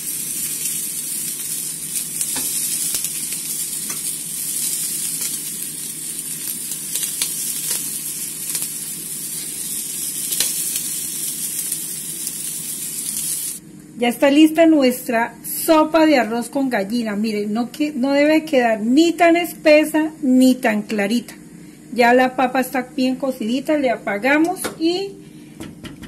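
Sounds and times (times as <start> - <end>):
meat sizzling in a pan: 0.0 - 13.6
oil crackles and pops: 0.0 - 13.6.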